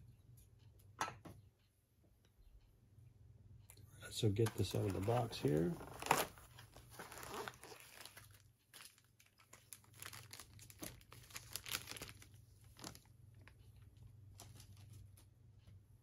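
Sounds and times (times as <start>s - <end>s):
plastic bag crinkling: 4.5s - 13.6s.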